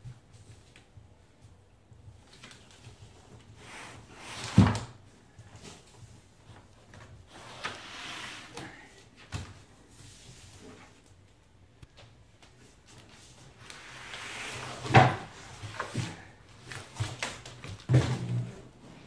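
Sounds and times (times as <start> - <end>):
cardboard and foam rustling: 12.5 - 19.0.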